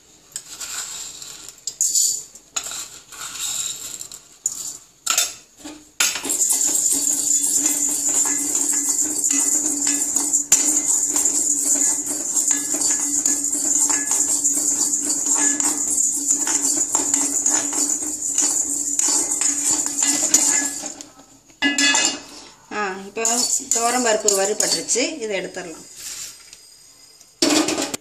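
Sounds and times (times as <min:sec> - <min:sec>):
lentils clattering into a pan: 0:00.4 - 0:21.2, 0:23.2 - 0:26.4
spatula stirring dry lentils: 0:06.0 - 0:21.0, 0:23.1 - 0:26.3.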